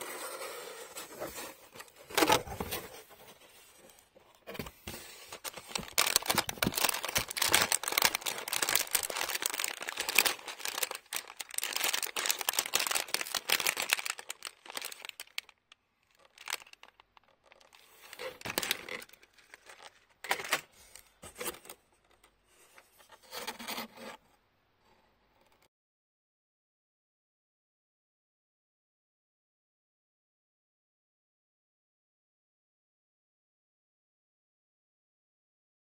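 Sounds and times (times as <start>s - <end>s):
plastic bags crinkling: 5.3s - 20.8s.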